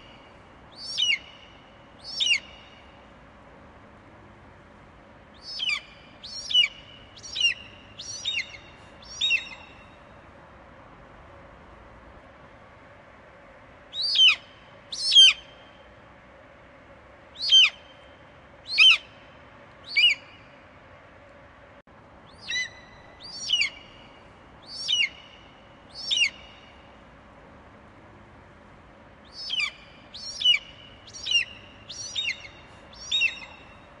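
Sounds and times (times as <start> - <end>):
faint steady hum: 0.0 - 34.0
eagle calling: 0.7 - 2.8, 5.4 - 9.8, 14.0 - 15.5, 17.4 - 17.9, 18.7 - 19.1, 19.9 - 20.4, 22.3 - 24.0, 24.6 - 26.6, 29.3 - 33.8.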